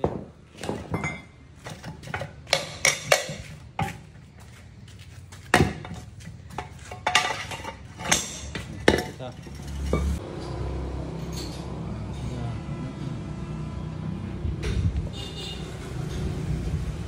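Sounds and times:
metallic clanks and knocks: 0:00.0 - 0:04.2, 0:05.5 - 0:10.6.

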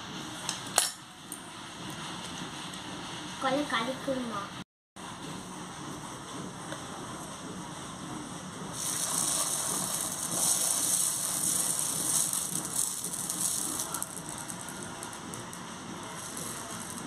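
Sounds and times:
batter sizzling on griddle: 0:08.7 - 0:17.0.

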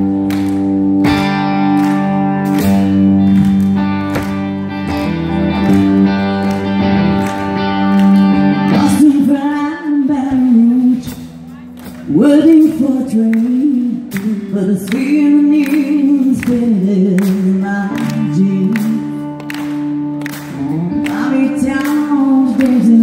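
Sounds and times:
country band playing: 0:00.0 - 0:23.0
woman singing: 0:08.7 - 0:11.3, 0:12.0 - 0:19.4, 0:20.6 - 0:23.0.

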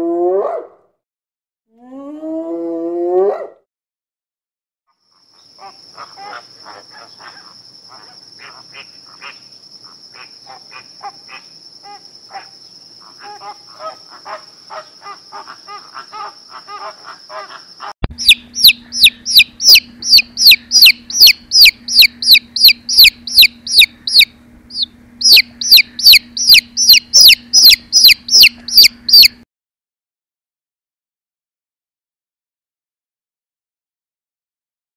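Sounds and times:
flamingos calling softly: 0:05.1 - 0:29.3
chick peeping loudly: 0:05.6 - 0:29.4.

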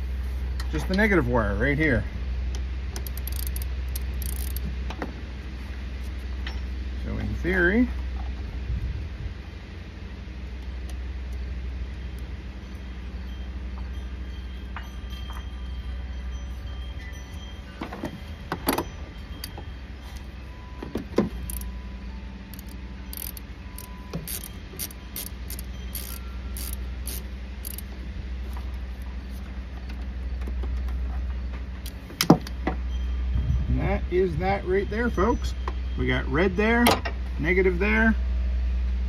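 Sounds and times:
steady low rumble: 0:00.0 - 0:39.0
metal clicks and clinks: 0:03.0 - 0:04.6, 0:21.3 - 0:21.8, 0:22.5 - 0:27.9
socket ratchet ticking: 0:03.0 - 0:04.7, 0:21.4 - 0:21.7, 0:22.5 - 0:27.9.

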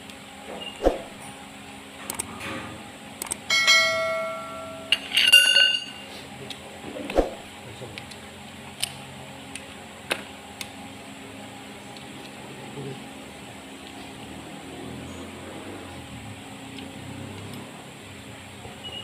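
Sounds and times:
bell-like ding: 0:03.5 - 0:06.0
ringing chime: 0:03.5 - 0:06.0.

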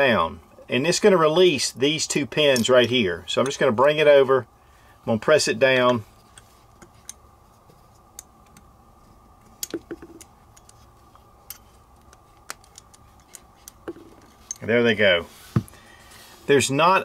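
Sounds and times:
small steel parts clicking: 0:09.4 - 0:14.7.

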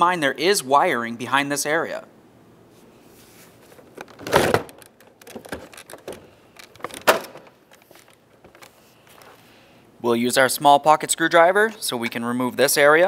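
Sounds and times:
small clicks and knocks: 0:03.9 - 0:09.3.

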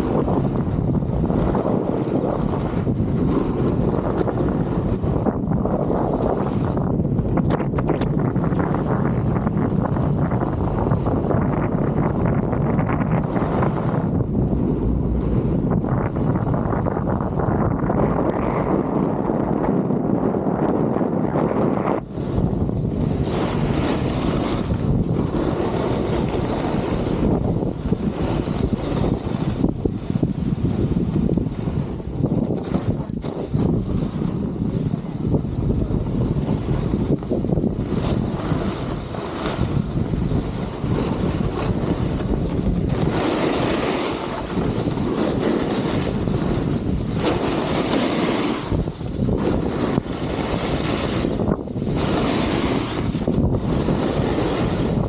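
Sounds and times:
snowboard sliding over snow: 0:00.0 - 0:55.0
wind on microphone: 0:00.0 - 0:55.0
snowboard hissing on snow: 0:22.0 - 0:30.9, 0:37.8 - 0:55.0.

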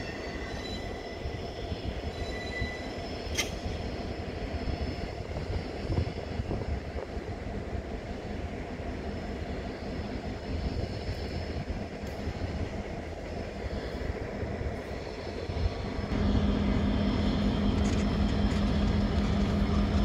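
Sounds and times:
faint wheel squeal: 0:00.0 - 0:03.6
freight train wheels rumbling: 0:00.0 - 0:20.0
sharp click: 0:03.3 - 0:03.6.

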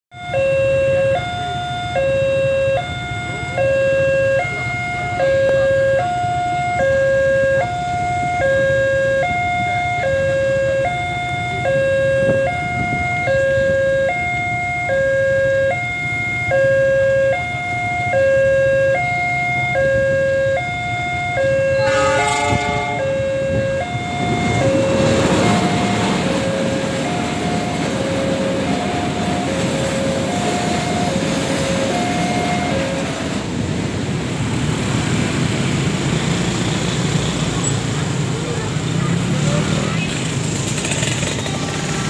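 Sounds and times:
two-tone crossing alarm: 0:00.1 - 0:33.8
motorcycle engines idling: 0:37.4 - 0:42.0.

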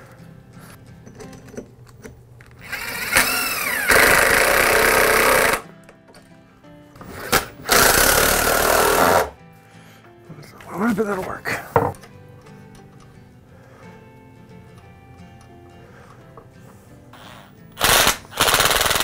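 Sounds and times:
drill click: 0:02.4 - 0:05.6, 0:07.0 - 0:09.3, 0:17.2 - 0:19.0
cordless drill drilling into wood: 0:02.6 - 0:05.6, 0:07.1 - 0:09.4, 0:17.2 - 0:19.0.

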